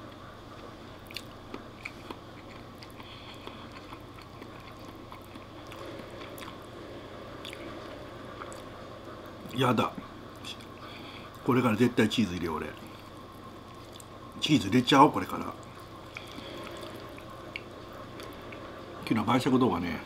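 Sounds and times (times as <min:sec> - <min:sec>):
person chewing: 0:01.0 - 0:06.7, 0:07.4 - 0:08.7, 0:13.7 - 0:14.2, 0:15.6 - 0:18.7.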